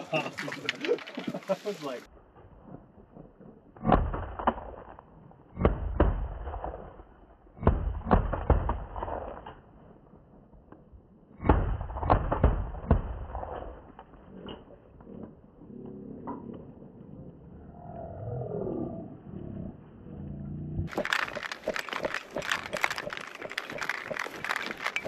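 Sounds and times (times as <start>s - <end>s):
shotgun shots booming: 7.6s - 9.4s, 11.4s - 13.8s.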